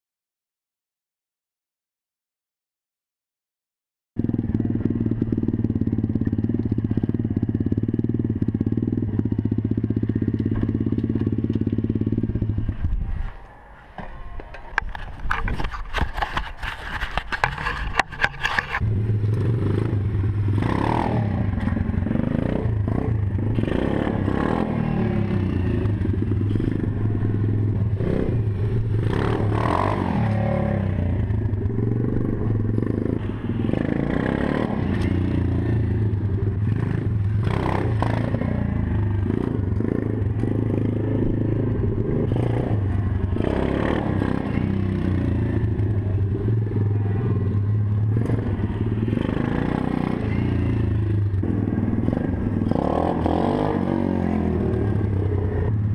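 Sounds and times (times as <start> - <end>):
motorbike engine revving: 4.2 - 13.1, 17.3 - 55.9
knocks and scrapes: 13.0 - 19.4.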